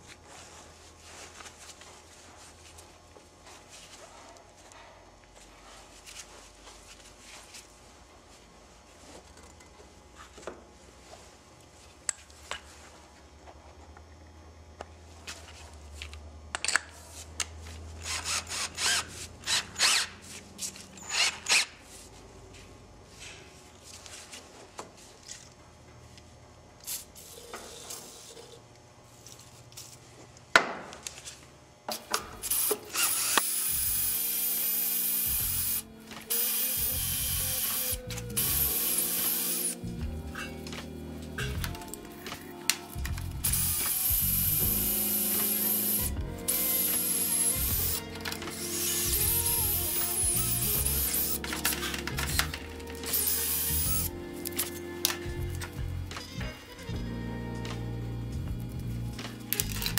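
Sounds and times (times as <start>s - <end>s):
cordless drill spinning: 18.0s - 20.1s, 21.0s - 21.7s, 32.4s - 39.8s, 43.3s - 54.7s
music: 33.6s - 59.9s.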